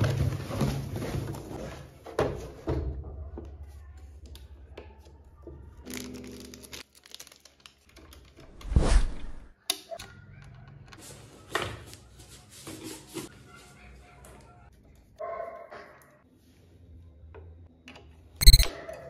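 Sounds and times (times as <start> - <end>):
sharp click: 18.4 - 18.7.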